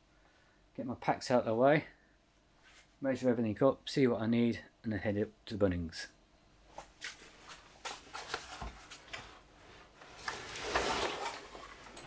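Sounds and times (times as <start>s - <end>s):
backpacks rustling and scraping: 6.8s - 12.0s.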